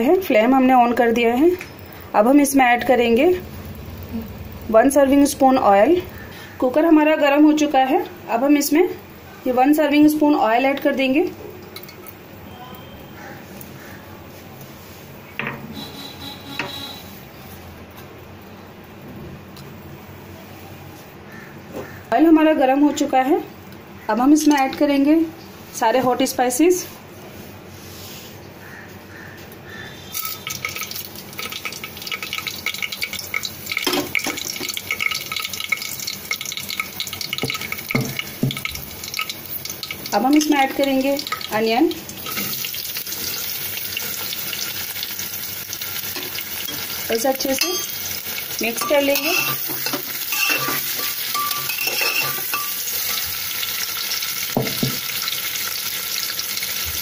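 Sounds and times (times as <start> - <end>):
spices sizzling in hot oil: 0.0 - 8.8, 30.1 - 57.0
steel spoon scraping pot: 47.5 - 53.3.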